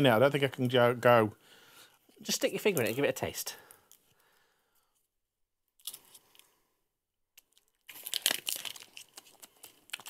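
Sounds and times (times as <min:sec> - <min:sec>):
close crinkling rustle: 0:07.6 - 0:10.0.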